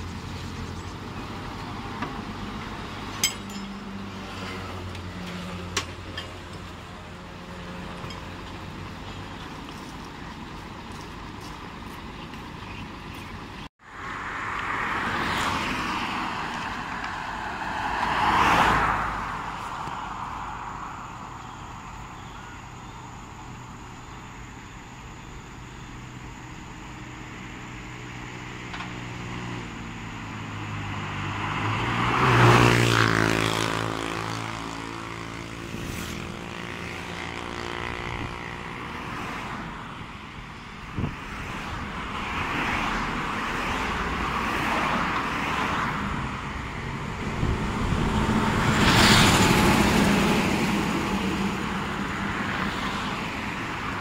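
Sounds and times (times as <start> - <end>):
heavy vehicle engine: 0.0 - 17.9, 33.0 - 54.0
road traffic passing: 0.0 - 54.0.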